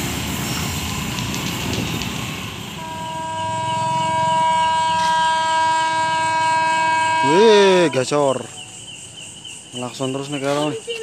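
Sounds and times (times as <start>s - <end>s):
rumbling train and traffic: 0.0s - 11.0s
train horn blast: 2.7s - 8.5s.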